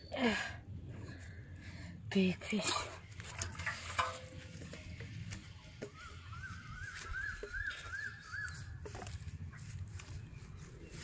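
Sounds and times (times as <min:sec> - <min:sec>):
low outdoor rumble: 0:00.0 - 0:11.0
bird calling in rapid notes: 0:05.9 - 0:08.9.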